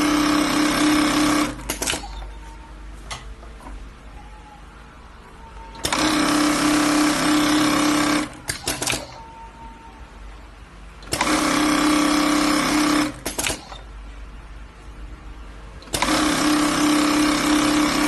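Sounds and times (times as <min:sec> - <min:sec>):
sewing machine whirring: 0:00.0 - 0:02.6, 0:05.4 - 0:10.0, 0:11.0 - 0:14.0, 0:15.8 - 0:18.0
quick machine clicks: 0:01.5 - 0:02.2, 0:08.2 - 0:09.2, 0:11.0 - 0:11.6, 0:12.9 - 0:13.9.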